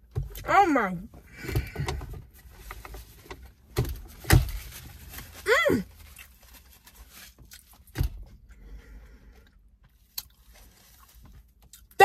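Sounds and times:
person chewing: 9.9s - 12.0s.

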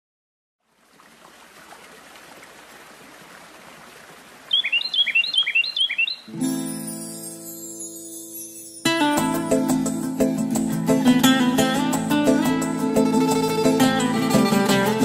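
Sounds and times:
bird two-note chirps: 4.5s - 6.6s.

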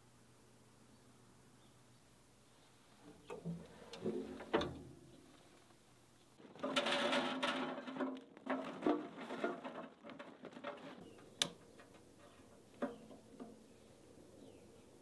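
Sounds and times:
charcoal clattering into metal firebox: 3.0s - 5.3s, 6.4s - 13.8s.

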